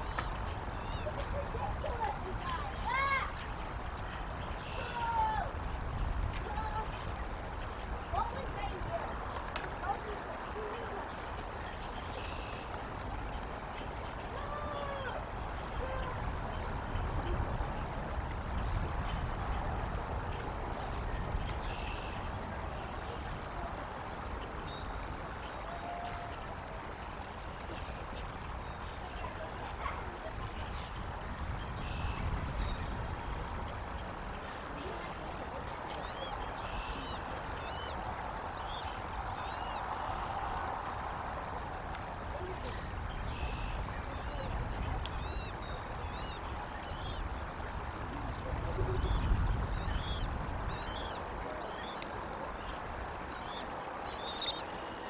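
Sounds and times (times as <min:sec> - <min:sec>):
small birds chirping: 0:27.2 - 0:40.2, 0:42.4 - 0:55.0.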